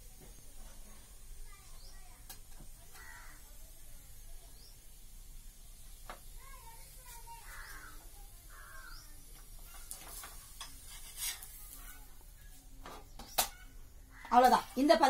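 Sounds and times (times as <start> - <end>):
harsh bird calls: 3.0 - 3.5, 7.3 - 9.9.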